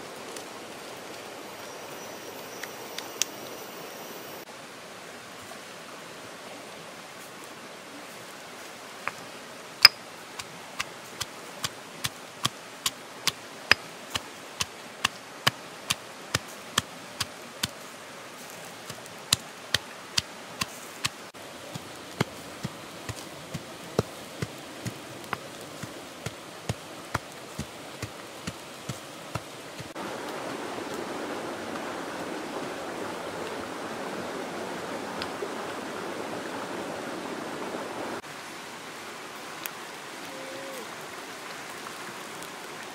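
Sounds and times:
fish grilling hiss: 0:15.9 - 0:30.0.

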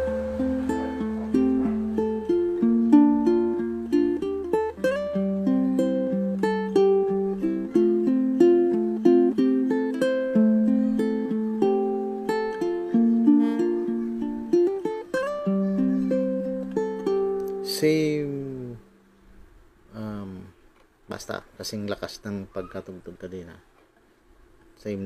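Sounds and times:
ukulele melody picked: 0:00.0 - 0:19.0.

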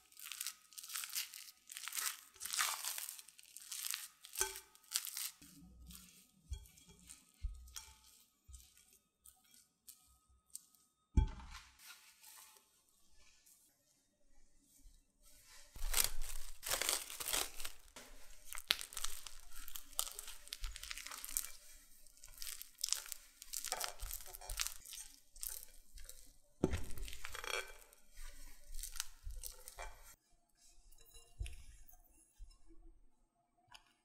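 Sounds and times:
spatula squelching sticky dough: 0:00.0 - 0:11.0, 0:15.3 - 0:30.2.

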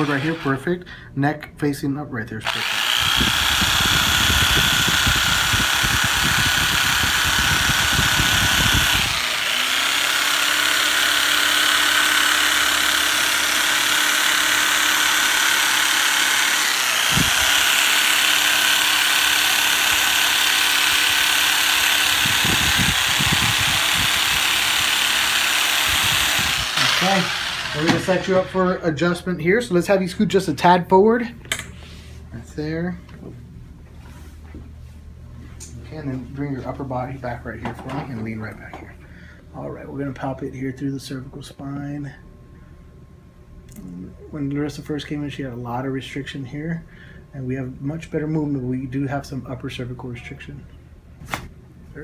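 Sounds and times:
percussive massager running: 0:02.4 - 0:28.9.

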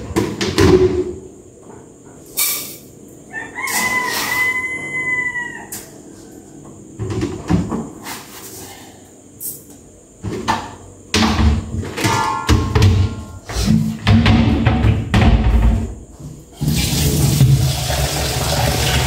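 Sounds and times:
rooster crowing: 0:03.2 - 0:06.8.

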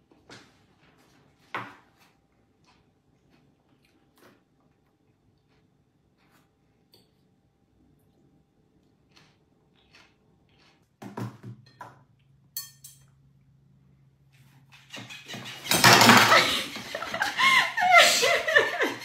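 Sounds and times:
fork clinking on plate: 0:12.6 - 0:13.2
laughter: 0:15.3 - 0:19.0.

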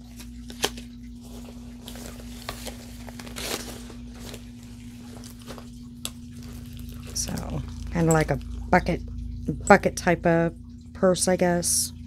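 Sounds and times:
steady low hum: 0:00.0 - 0:12.0
purse rustling and crinkling: 0:00.2 - 0:08.6.

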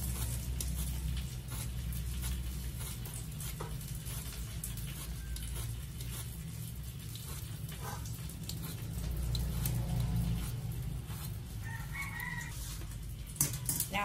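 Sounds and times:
pieces tapping into metal colander: 0:13.3 - 0:14.0.

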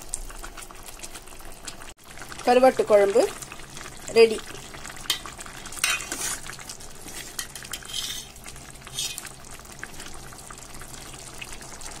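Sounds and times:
curry bubbling in a pot: 0:00.0 - 0:12.0
ladle stirring and scraping: 0:05.0 - 0:10.2.

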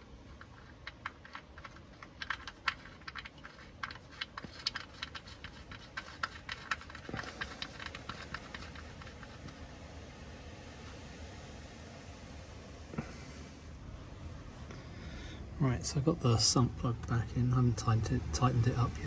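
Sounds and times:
metallic clicking and tapping: 0:00.4 - 0:09.6.

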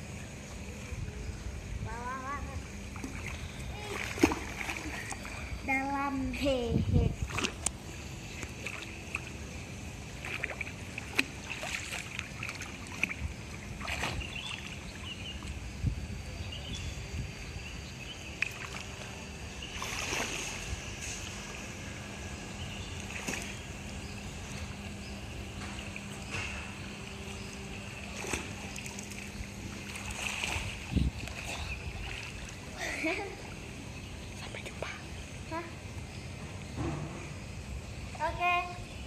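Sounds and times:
faint steady hum: 0:00.0 - 0:39.0
pool water sloshing and lapping: 0:02.8 - 0:15.8, 0:18.1 - 0:36.0
small splashes: 0:02.9 - 0:05.5, 0:07.3 - 0:07.7, 0:10.2 - 0:15.6, 0:19.7 - 0:20.7, 0:23.0 - 0:23.6, 0:28.0 - 0:33.6.

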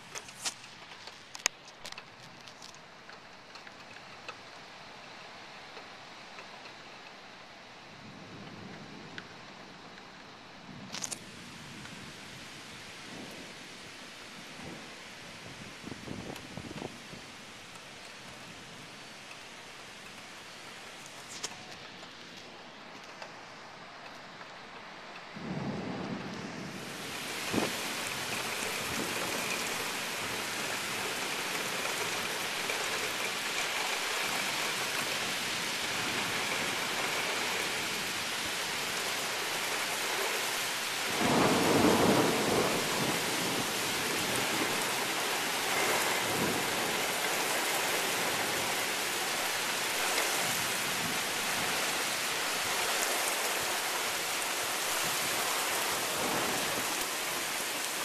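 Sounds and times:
heavy rain pouring: 0:00.0 - 0:58.0
loud thunderclap: 0:41.1 - 0:43.6.

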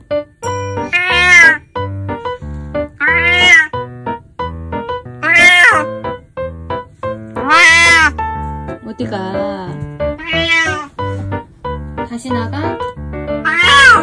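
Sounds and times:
cat meowing loudly: 0:00.8 - 0:01.6, 0:03.0 - 0:03.8, 0:05.2 - 0:05.9, 0:07.4 - 0:08.2, 0:10.2 - 0:10.9, 0:13.4 - 0:14.0.

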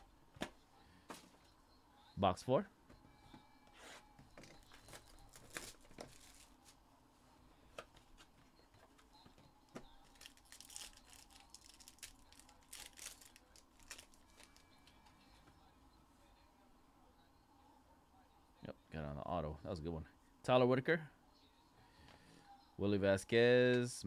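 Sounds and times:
foil wrapper crinkling and tearing: 0:04.9 - 0:06.6, 0:10.0 - 0:14.6.

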